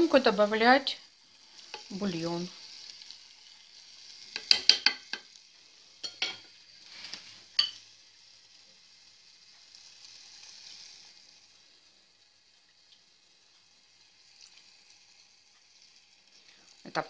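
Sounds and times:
onions sizzling in a pan: 0.0 - 17.0
metal spoon clinking on cookware: 4.4 - 5.2, 6.0 - 6.5, 7.6 - 7.8.

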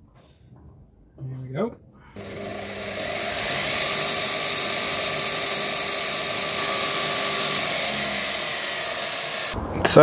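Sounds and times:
belt grinder running: 2.2 - 9.6.

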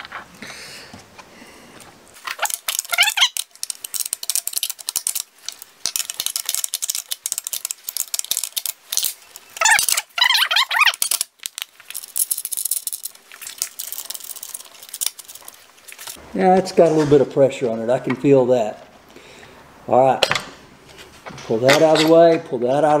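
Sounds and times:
wrench clicking and rattling: 2.2 - 16.2
metal squeaking: 2.3 - 4.6, 8.9 - 11.2.

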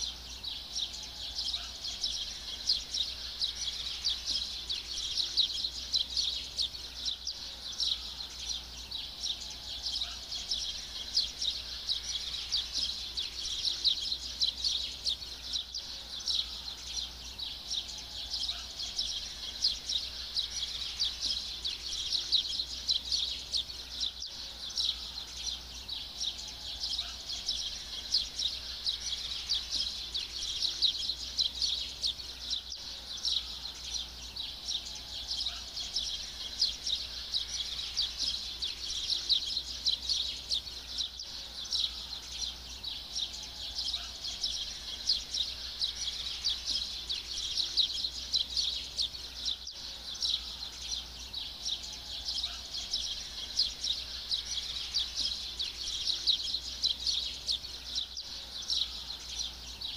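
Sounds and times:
small birds chirping: 0.0 - 59.9.

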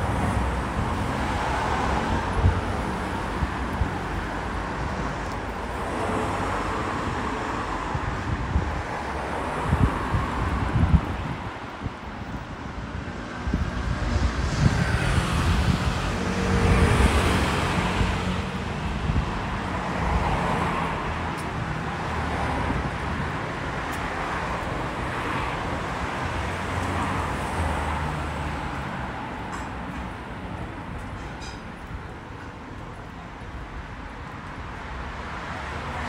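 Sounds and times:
street traffic hum: 0.0 - 36.0.

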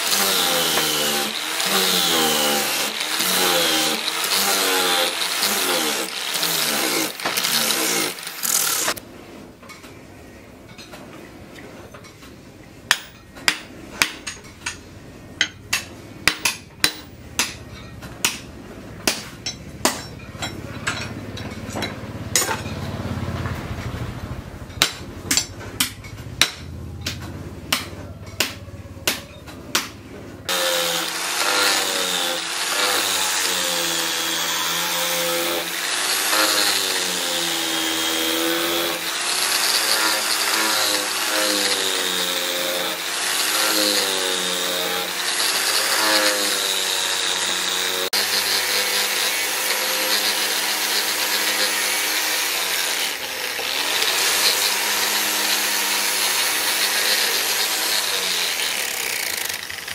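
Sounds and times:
angle grinder sanding wood: 0.0 - 9.0, 30.5 - 59.9
hammer knocking axe head: 15.4 - 20.6, 24.8 - 30.0.

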